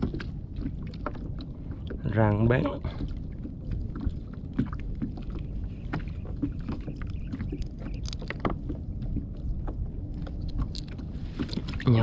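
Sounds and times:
water lapping against kayak hull: 0.0 - 12.0
wind rumble: 0.0 - 12.0
small clicks and taps: 6.7 - 8.7.

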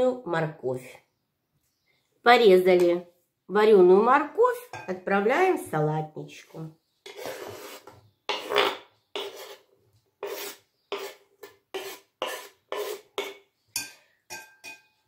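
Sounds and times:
knife scraping wooden board: 7.0 - 13.4.

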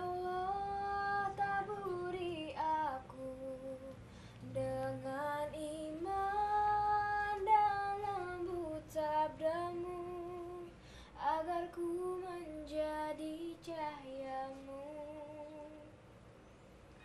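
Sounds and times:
girl singing: 0.0 - 16.0.

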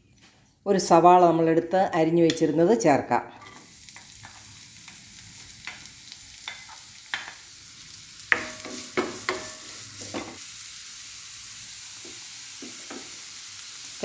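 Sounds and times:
onions sizzling in hot oil: 3.4 - 14.0
wooden spatula knocking on pan: 8.3 - 9.5.

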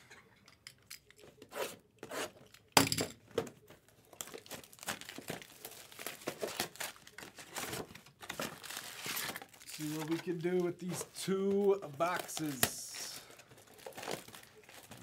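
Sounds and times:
plastic wrap crinkling: 3.6 - 15.0
plastic wrap ripping: 4.2 - 15.0.

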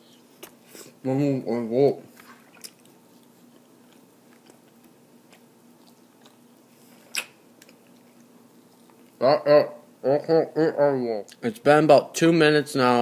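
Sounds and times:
person chewing: 2.1 - 9.2.

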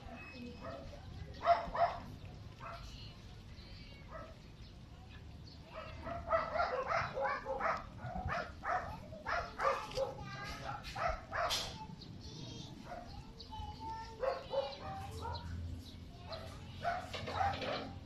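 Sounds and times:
dog barking: 0.6 - 2.9, 4.1 - 4.4, 5.7 - 11.8, 12.9 - 13.2, 14.2 - 15.6, 16.3 - 18.0.

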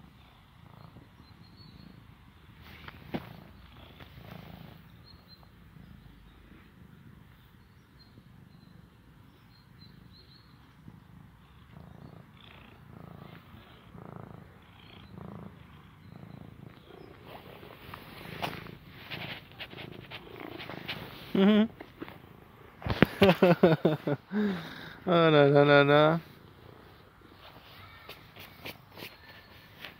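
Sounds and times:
cat purring: 0.0 - 29.9
handling rustles: 17.2 - 22.2.

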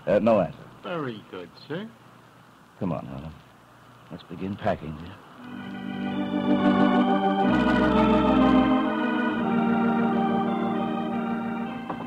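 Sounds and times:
sustained organ chords: 5.4 - 12.0.

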